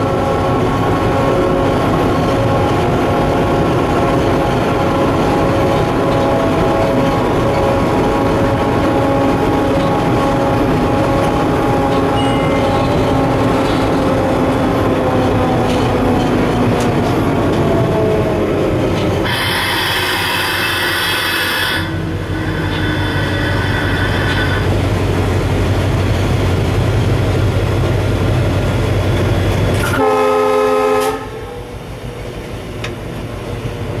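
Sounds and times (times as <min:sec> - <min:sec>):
locomotive cab rumble and hum: 0:00.0 - 0:34.0
faint high beep: 0:12.2 - 0:13.0
locomotive horn: 0:19.2 - 0:24.7, 0:29.8 - 0:31.8.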